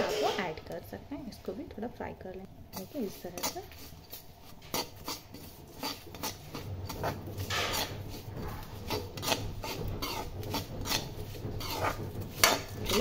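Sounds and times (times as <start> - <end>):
metal spoon scraping a metal pan: 0.0 - 0.6, 2.7 - 13.0
low steady hum: 0.0 - 13.0.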